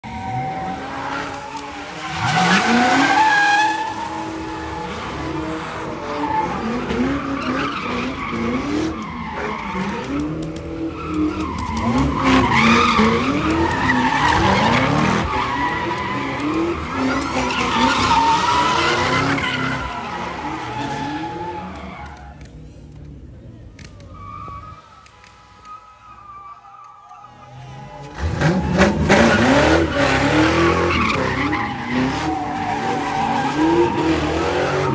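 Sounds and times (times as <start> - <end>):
car engine revving: 28.0 - 34.9.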